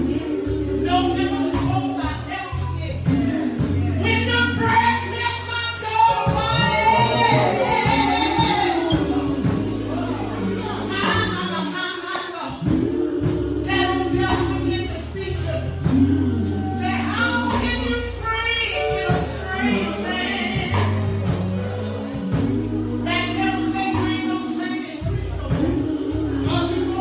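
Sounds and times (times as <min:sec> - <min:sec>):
gospel choir singing: 0:00.0 - 0:27.0
instrumental accompaniment with beat: 0:00.0 - 0:27.0.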